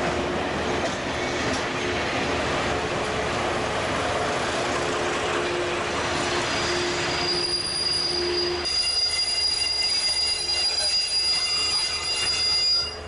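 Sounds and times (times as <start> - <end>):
diesel railcar running: 0.0 - 13.0
steel wheels squealing: 6.2 - 13.0
thin high squeal: 6.5 - 13.0.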